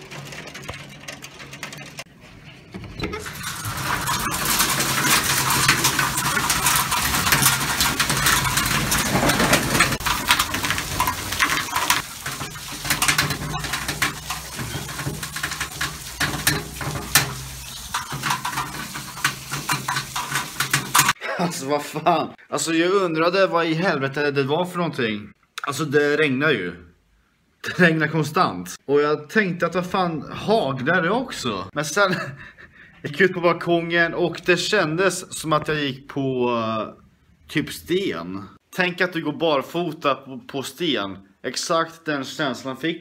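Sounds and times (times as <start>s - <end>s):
ice pellets and rain pattering: 0.0s - 2.1s, 3.2s - 21.2s.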